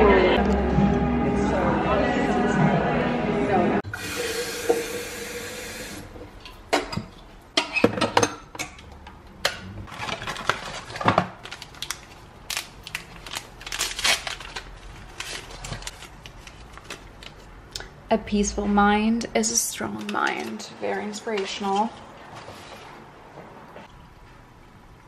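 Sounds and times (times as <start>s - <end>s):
faucet water running into kettle: 3.9s - 6.2s
paper crinkling: 9.9s - 17.5s.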